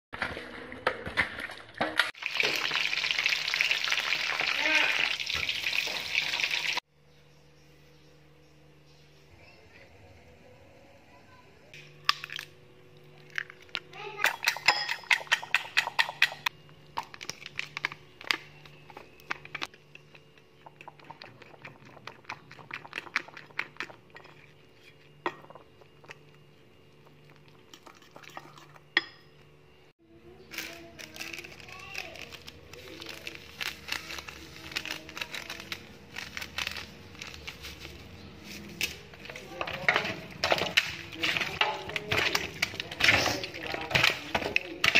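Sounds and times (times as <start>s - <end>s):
utensil clinking against bowl: 13.4s - 16.5s
chicken pieces clattering in metal bowl: 30.6s - 44.9s.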